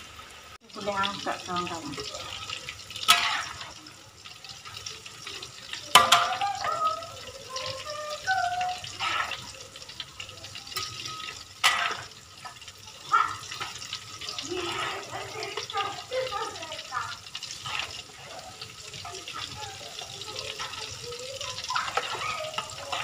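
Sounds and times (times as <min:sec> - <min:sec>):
food sizzling in hot oil: 0:00.0 - 0:23.0
metal ladle knocking on wok: 0:06.0 - 0:06.4.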